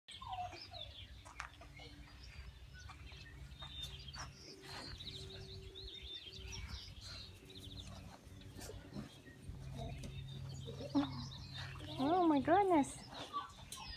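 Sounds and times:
puppies whimpering: 0:00.1 - 0:01.0, 0:06.4 - 0:12.4, 0:13.0 - 0:13.9
bird chirps and trills: 0:00.1 - 0:13.9
low steady hum: 0:00.2 - 0:13.9.

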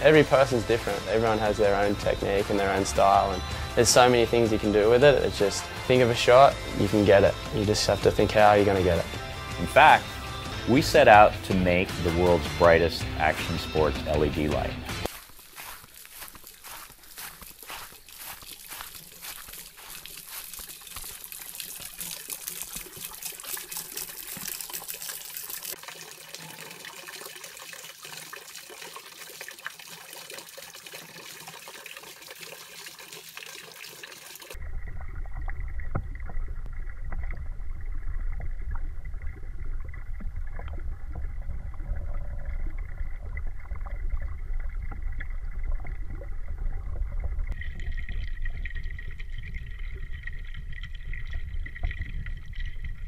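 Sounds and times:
small water splashes: 0:15.0 - 0:53.0
water trickling in a pond: 0:15.0 - 0:53.0.

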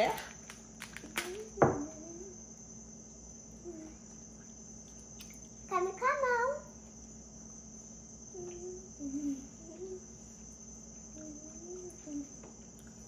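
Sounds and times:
cricket trill: 0:00.0 - 0:13.0
person humming softly: 0:08.3 - 0:10.2, 0:11.2 - 0:12.5.

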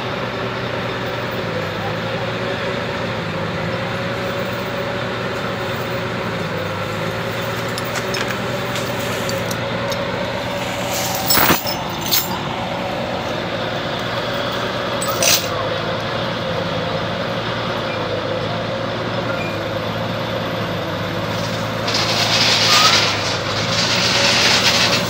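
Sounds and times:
diesel engine idling: 0:00.0 - 0:25.0
chain clanking on steel deck: 0:07.2 - 0:13.4, 0:14.2 - 0:15.6, 0:21.2 - 0:25.0.

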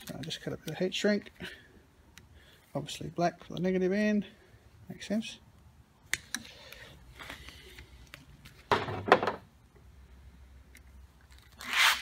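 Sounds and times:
faint rustling of cable: 0:06.2 - 0:08.9
tool clattering and knocking: 0:08.7 - 0:09.5.

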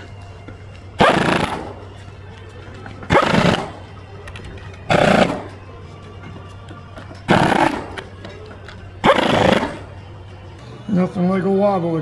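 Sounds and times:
pneumatic impact wrench bursts: 0:01.0 - 0:01.8, 0:03.1 - 0:03.8, 0:04.9 - 0:05.5, 0:07.3 - 0:08.0, 0:09.0 - 0:09.9.

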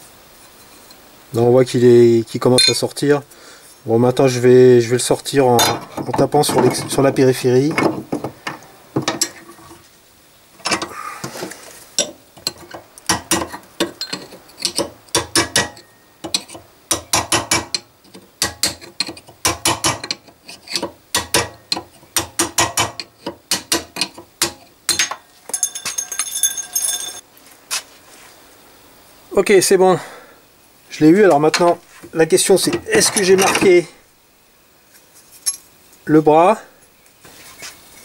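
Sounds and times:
hammer striking steel chisel: 0:13.1 - 0:17.8
metallic jingle: 0:25.0 - 0:27.2.

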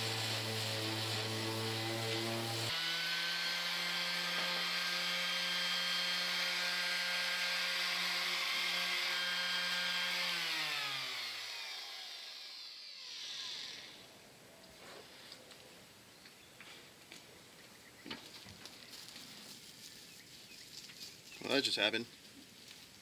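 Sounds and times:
electric sander humming: 0:00.0 - 0:14.0.

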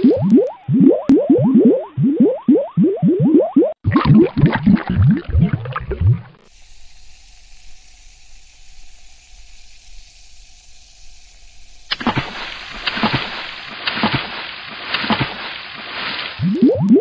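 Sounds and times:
water fizzing hiss: 0:06.4 - 0:17.0
sharp water splashes: 0:11.3 - 0:17.0
water splashing and sloshing: 0:11.4 - 0:17.0.

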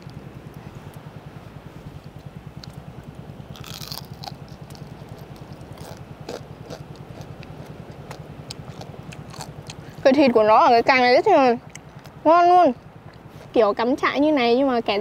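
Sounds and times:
low hum: 0:00.0 - 0:15.0
crab shell cracking while chewed: 0:02.1 - 0:02.8, 0:03.5 - 0:09.9
loud crunch: 0:03.5 - 0:09.9.

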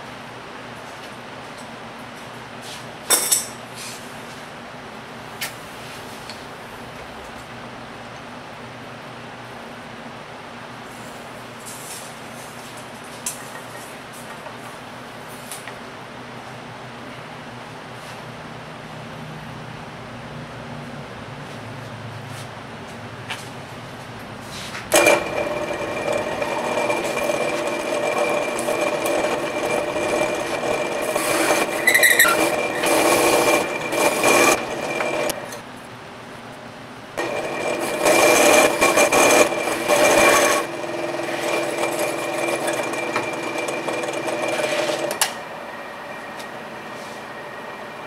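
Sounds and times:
drill press cutting metal: 0:24.9 - 0:35.6, 0:37.2 - 0:48.0.

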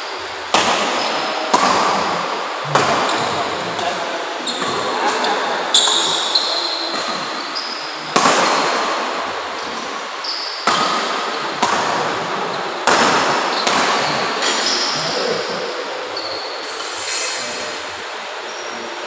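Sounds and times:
racket hitting shuttlecock: 0:00.5 - 0:05.2, 0:05.8 - 0:07.5, 0:08.1 - 0:09.1, 0:10.6 - 0:12.2, 0:12.8 - 0:14.7.

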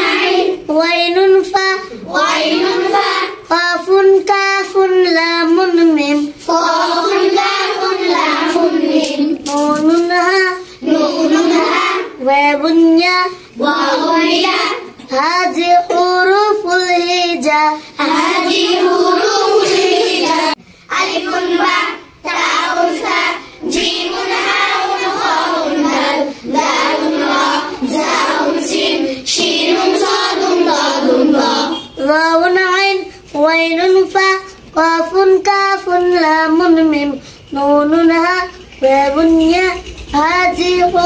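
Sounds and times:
girls singing together: 0:00.0 - 0:41.0.

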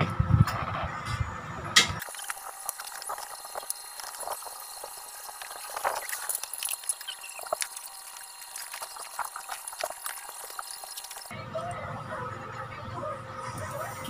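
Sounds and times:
soldering iron crackle and sizzle: 0:02.0 - 0:11.3.

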